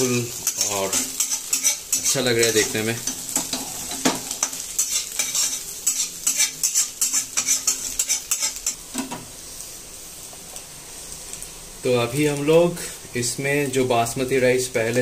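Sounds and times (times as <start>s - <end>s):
food sizzling in a pan: 0.0s - 15.0s
spatula scraping a pan: 0.3s - 8.8s.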